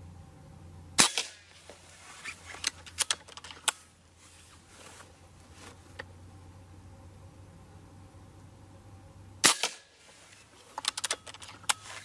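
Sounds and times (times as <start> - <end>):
air rifle cocking lever clicks: 10.8 - 11.8.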